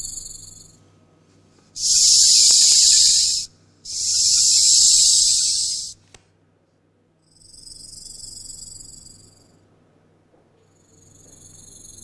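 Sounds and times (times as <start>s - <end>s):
snake hissing: 1.8s - 6.0s.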